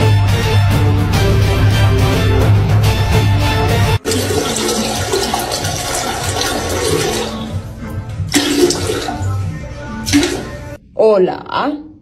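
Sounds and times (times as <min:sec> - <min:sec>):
toilet flushing: 0:04.0 - 0:09.4, 0:10.0 - 0:10.7.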